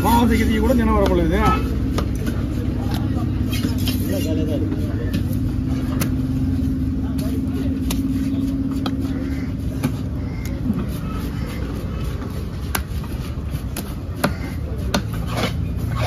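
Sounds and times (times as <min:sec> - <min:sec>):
low background rumble: 0:00.0 - 0:16.0
cleaver chopping on wooden block: 0:12.6 - 0:16.0.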